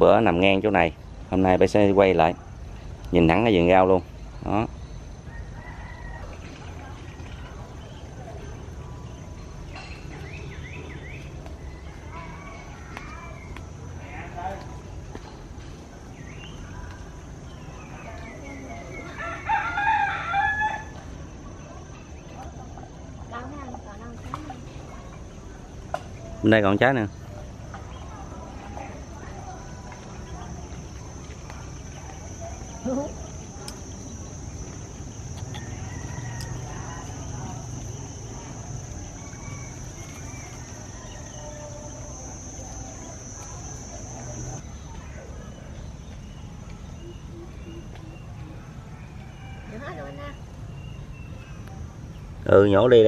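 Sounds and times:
rooster crowing: 0:05.3 - 0:06.5, 0:19.1 - 0:21.0, 0:35.2 - 0:44.6, 0:48.8 - 0:50.2
high-pitched insect drone: 0:28.8 - 0:44.6.

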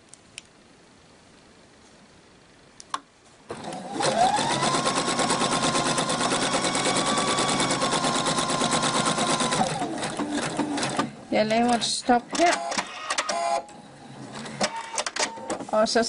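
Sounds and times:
sewing machine running: 0:03.5 - 0:11.1.

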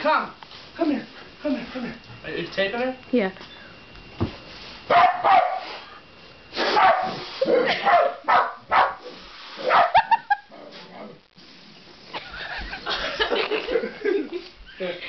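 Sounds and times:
dog barking and yelping: 0:04.9 - 0:05.6, 0:06.7 - 0:10.2.

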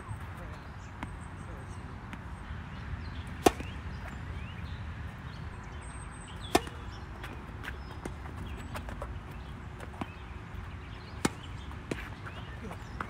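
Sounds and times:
tennis racket hitting ball: 0:03.4 - 0:04.1, 0:06.5 - 0:10.3, 0:11.0 - 0:13.0.

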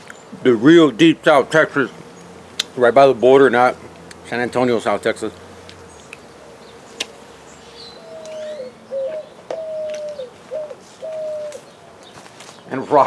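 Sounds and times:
dove cooing: 0:05.7 - 0:12.2.

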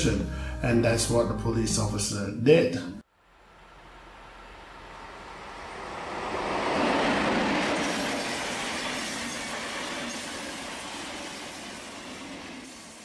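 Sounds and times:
electric train passing at speed: 0:03.1 - 0:13.0.

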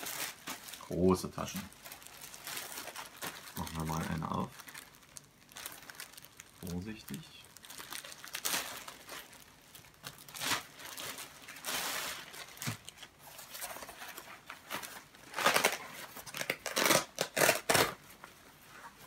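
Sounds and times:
plastic bag crinkling: 0:00.0 - 0:18.0.

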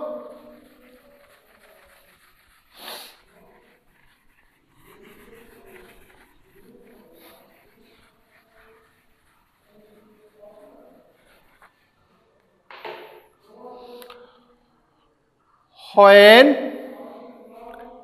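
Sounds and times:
duster wiping a whiteboard: 0:00.0 - 0:14.0
sharp hissing puff: 0:02.7 - 0:03.2.

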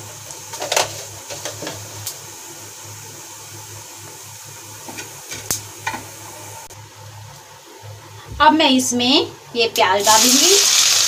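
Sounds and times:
seeds sizzling in hot oil: 0:10.0 - 0:11.0.

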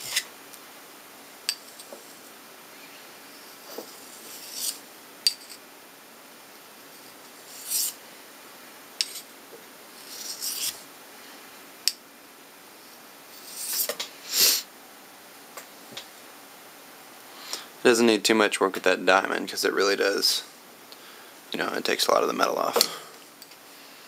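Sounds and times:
knife blade scraping on sharpener: 0:00.0 - 0:00.3, 0:04.2 - 0:05.6, 0:07.5 - 0:08.0, 0:09.0 - 0:09.3, 0:10.1 - 0:10.8.

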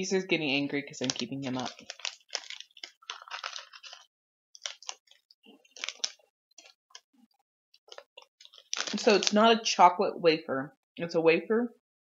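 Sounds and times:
plastic wrapper crinkling: 0:00.9 - 0:07.1, 0:07.8 - 0:09.5.

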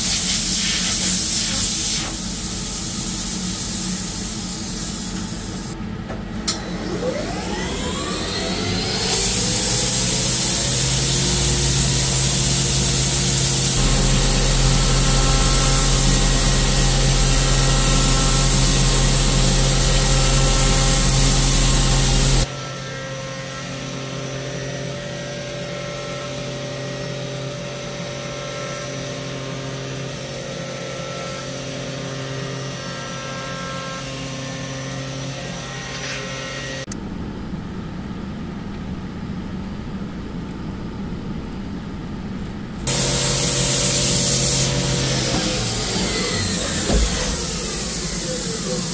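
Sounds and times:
compressed air hissing: 0:00.0 - 0:05.8, 0:09.0 - 0:22.5, 0:42.9 - 0:48.9
steady machine hum: 0:01.8 - 0:22.5, 0:36.9 - 0:48.9
milling machine spindle cutting metal: 0:06.9 - 0:22.5, 0:42.9 - 0:48.9.

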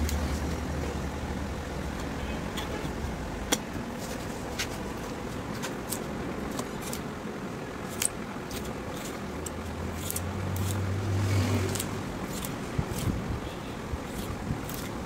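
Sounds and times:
knife cutting rubber: 0:05.7 - 0:07.1, 0:07.8 - 0:13.4, 0:14.0 - 0:15.0
low engine hum: 0:06.1 - 0:15.0.

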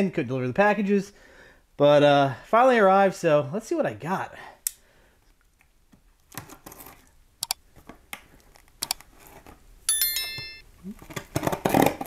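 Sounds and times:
bright bell-like chime: 0:09.9 - 0:10.6.

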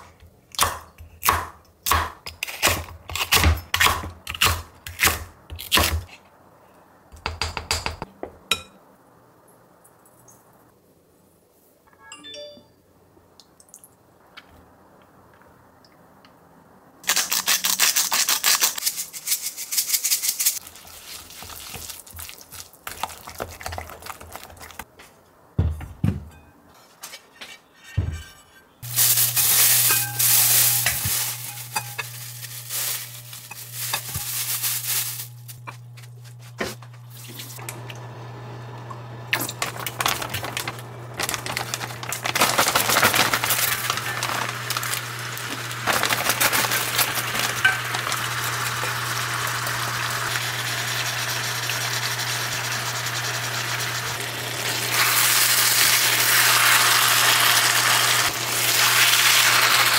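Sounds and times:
cooktop humming: 0:20.5 - 0:59.9
loud hiss: 0:28.8 - 0:31.8.

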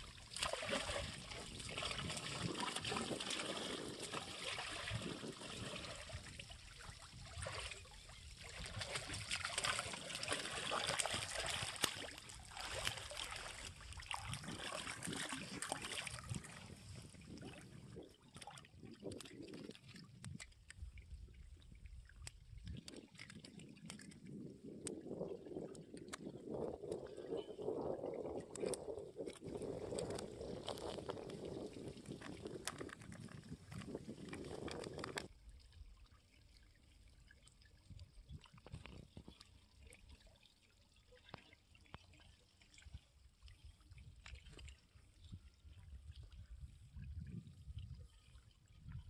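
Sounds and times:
water splashing and sloshing: 0:00.0 - 0:49.0.

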